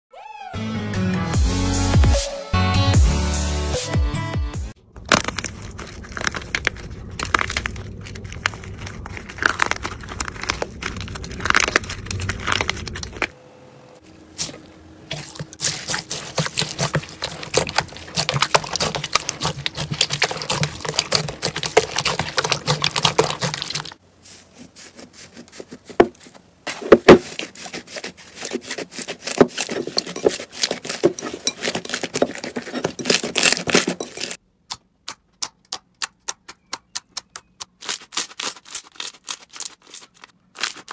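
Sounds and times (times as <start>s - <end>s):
slime crust crackling: 5.0s - 13.3s, 14.4s - 24.0s, 27.1s - 34.4s, 37.7s - 40.9s
sticky slime crackling and popping: 5.0s - 13.3s, 14.4s - 24.0s, 36.0s - 40.9s.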